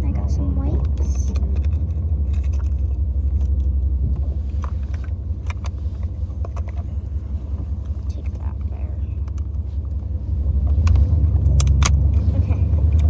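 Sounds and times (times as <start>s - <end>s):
car cabin low rumble: 0.0s - 13.0s
small clicks and rustles: 0.8s - 3.8s.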